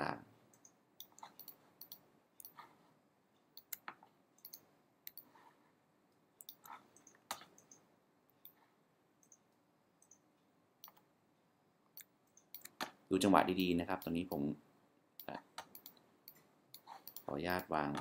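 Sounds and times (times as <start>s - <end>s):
mouse and keyboard clicks: 0.5s - 2.7s, 3.6s - 5.3s, 6.4s - 8.6s, 15.2s - 18.0s.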